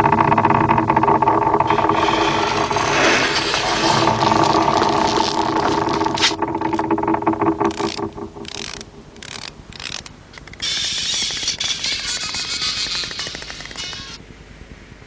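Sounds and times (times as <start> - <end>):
steady rushing noise: 0.0 - 9.2
low hum: 0.0 - 10.6
ratcheting mechanical clicks: 0.0 - 14.2.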